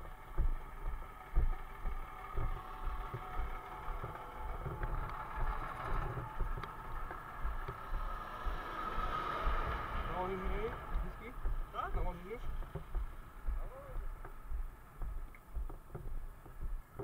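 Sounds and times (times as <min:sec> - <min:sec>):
vehicle engines passing: 0:00.0 - 0:15.5
microphone handling bumps: 0:10.0 - 0:17.0.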